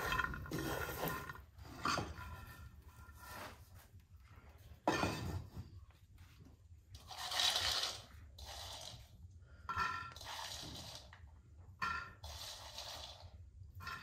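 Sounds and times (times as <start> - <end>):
food scraping in frying pan: 7.0 - 11.2, 11.8 - 14.0.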